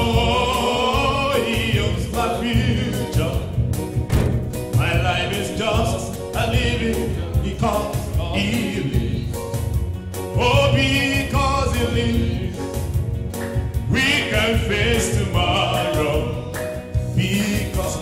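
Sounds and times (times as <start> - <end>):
man singing into microphone: 0.0 - 3.6, 4.7 - 9.5, 10.3 - 13.0, 13.8 - 18.0
instrumental accompaniment with beat: 0.0 - 18.0.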